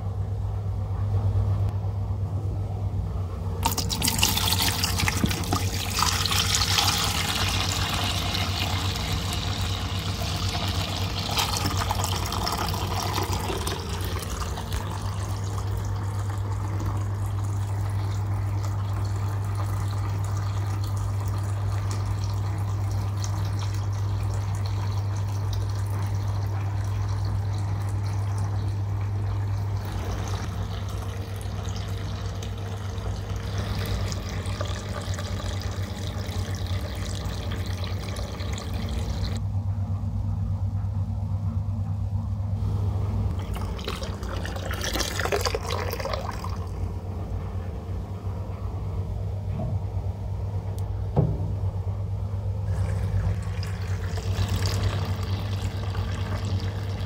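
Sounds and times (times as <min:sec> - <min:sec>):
steady low hum: 0:00.0 - 0:57.0
water pouring into bucket: 0:03.6 - 0:39.4, 0:43.3 - 0:46.8, 0:52.6 - 0:57.0.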